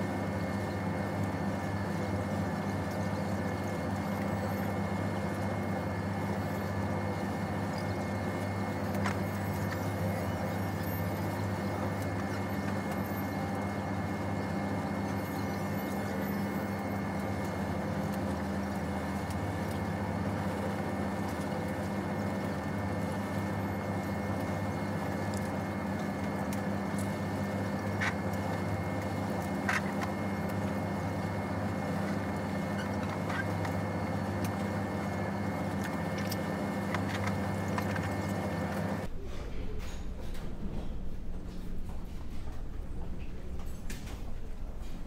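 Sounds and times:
ship engine hum: 0.0 - 45.0.

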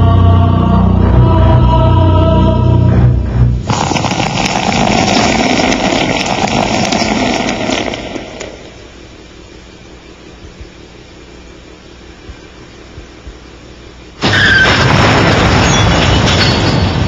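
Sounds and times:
beer fizzing and pouring: 3.7 - 8.4.

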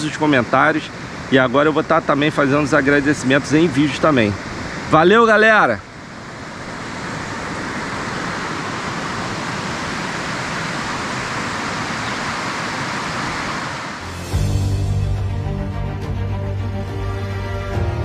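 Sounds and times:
stream rushing over rapids: 0.0 - 14.2
background music: 14.0 - 18.0.

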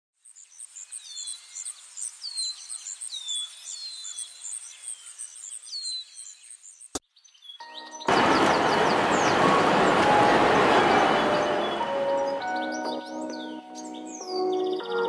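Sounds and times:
birds whistling: 2.4 - 15.0
insects chirping: 8.1 - 14.2.

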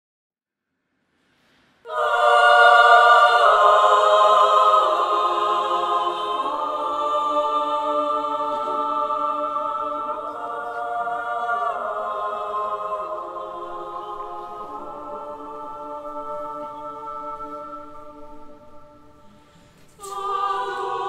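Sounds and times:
women's choir singing: 1.9 - 21.0.

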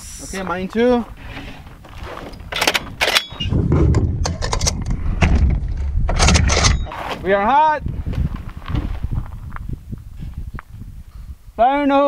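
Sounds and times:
wind buffeting microphone: 0.0 - 12.0
rifle handling clicks and knocks: 1.8 - 6.9.

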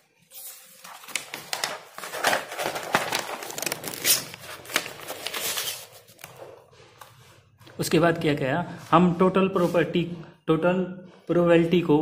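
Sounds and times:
notebook pages rustling: 0.1 - 8.0.

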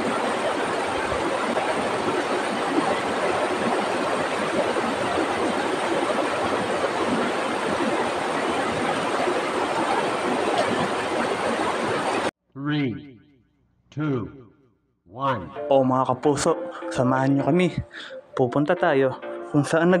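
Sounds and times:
water pouring over boulders: 0.0 - 12.3.

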